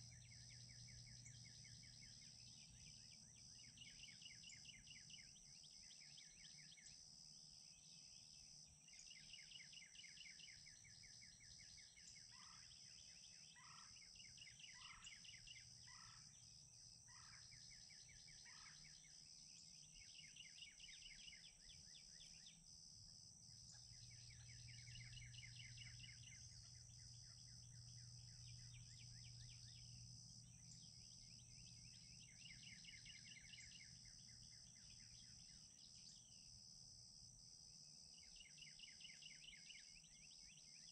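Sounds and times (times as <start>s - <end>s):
insect drone: 0.0s - 40.9s
distant turkey calls: 13.6s - 13.9s, 15.8s - 16.3s, 17.1s - 17.5s, 18.3s - 18.9s.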